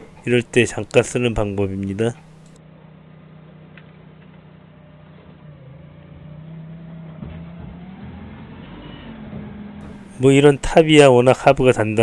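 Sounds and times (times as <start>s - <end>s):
forklift engine revving: 3.3s - 10.3s.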